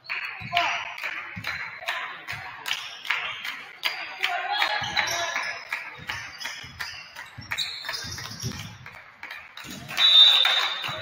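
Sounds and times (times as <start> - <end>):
basketball bouncing on gym floor: 0.3 - 2.6, 4.7 - 10.0
sneakers squeaking on court: 4.7 - 9.0.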